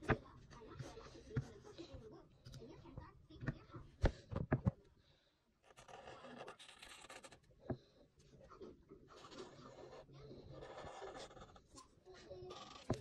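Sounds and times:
marker scratching on paper: 0.0 - 2.0, 5.6 - 7.5, 9.1 - 13.0.

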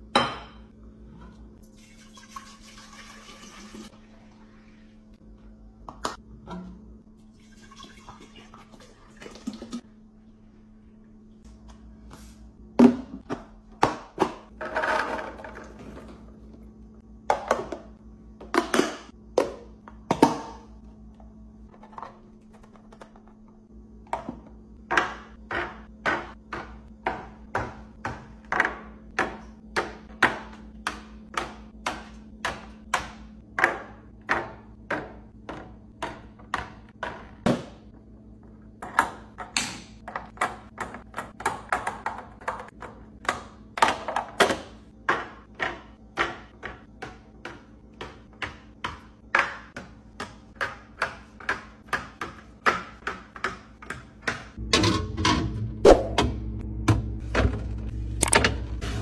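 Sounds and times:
items tapping plastic containers: 38.8 - 55.0.

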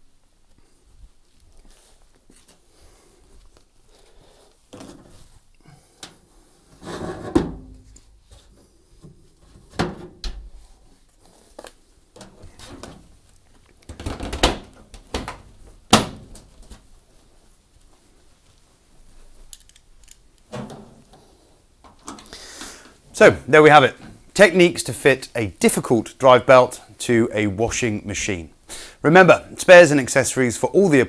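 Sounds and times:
panels knocking and clunking: 6.8 - 10.6, 13.8 - 16.8, 20.4 - 22.3
light clicks and handling noise: 17.7 - 23.0.

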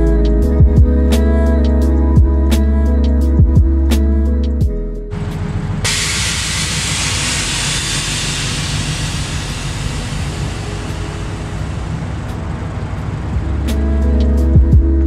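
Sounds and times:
air suspension hissing: 5.8 - 13.8.

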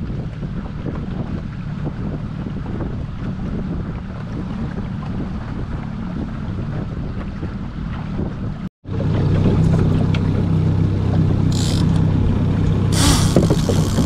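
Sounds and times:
wind on microphone: 0.0 - 8.7, 11.2 - 14.0
outboard motor running: 0.0 - 14.0
fishing reel drag buzzing: 11.5 - 12.1, 12.9 - 14.0.

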